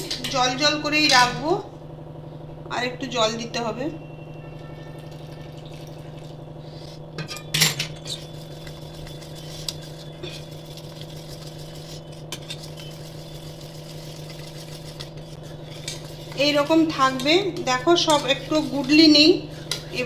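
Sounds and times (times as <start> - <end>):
whisk clinking in metal bowl: 7.2 - 20.0.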